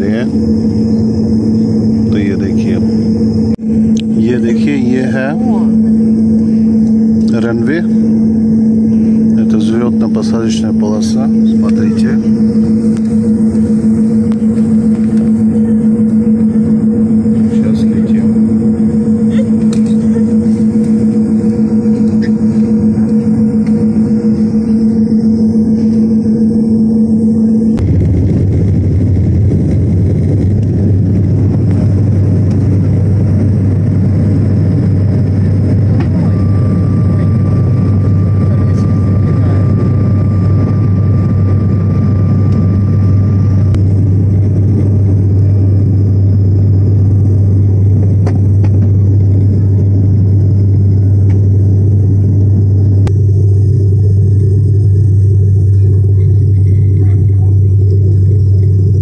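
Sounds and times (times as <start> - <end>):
high whine: 0.0 - 59.0
jet engines rumbling in cabin: 0.0 - 59.0.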